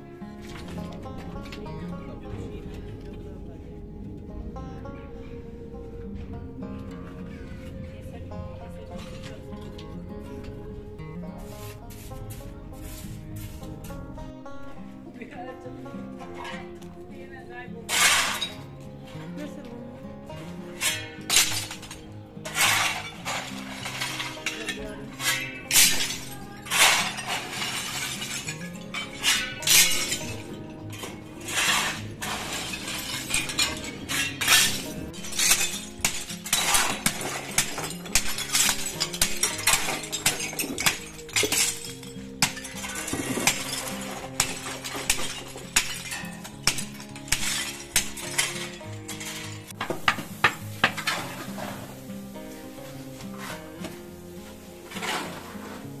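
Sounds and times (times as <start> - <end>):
background music: 0.0 - 56.0
tile shards clattering: 17.9 - 18.7, 20.8 - 51.9.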